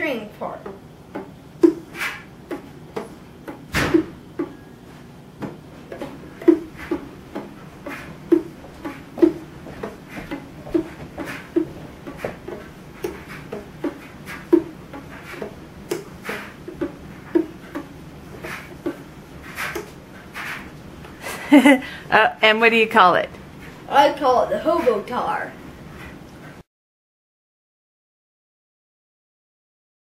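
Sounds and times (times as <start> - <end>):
one-string instrument twanging: 0.6 - 4.7, 5.4 - 20.0.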